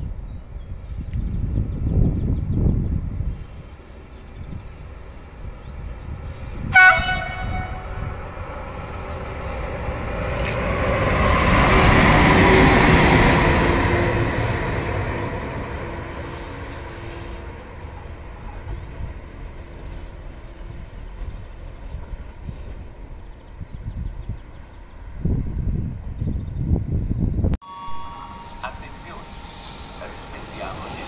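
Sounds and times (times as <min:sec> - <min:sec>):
locomotive horn blast: 0:06.6 - 0:08.2, 0:15.8 - 0:17.7, 0:27.6 - 0:31.0.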